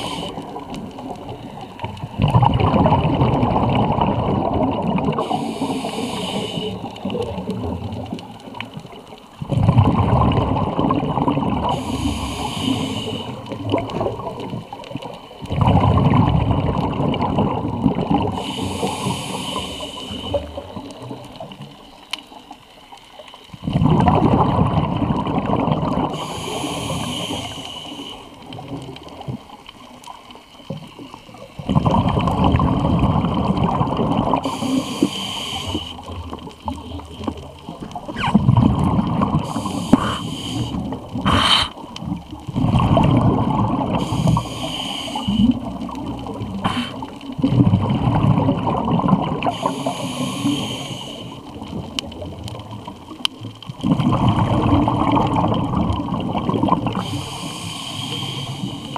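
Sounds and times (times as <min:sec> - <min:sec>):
regulator air hiss: 0:00.0 - 0:00.4, 0:05.2 - 0:07.0, 0:11.7 - 0:13.4, 0:18.4 - 0:20.4, 0:26.2 - 0:28.3, 0:34.4 - 0:36.0, 0:39.5 - 0:41.8, 0:44.0 - 0:45.6, 0:46.6 - 0:47.0, 0:49.5 - 0:51.4, 0:57.0 - 0:58.9
burble of exhaled bubbles: 0:00.0 - 0:58.9.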